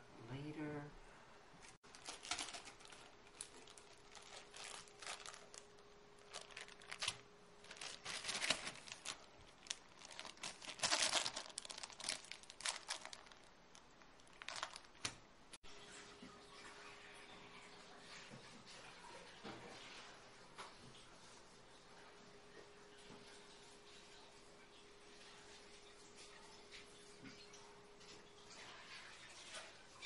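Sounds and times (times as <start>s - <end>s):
plastic bags crinkling: 1.8s - 15.4s.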